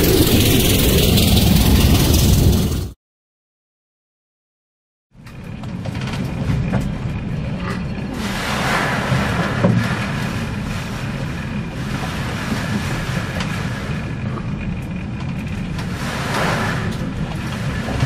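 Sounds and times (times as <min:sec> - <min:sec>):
low rumble of storm sea: 0:00.0 - 0:03.0, 0:05.2 - 0:18.0
rush of spray: 0:08.2 - 0:14.0, 0:15.9 - 0:18.0
hissing wash of water: 0:08.2 - 0:14.1, 0:15.9 - 0:18.0.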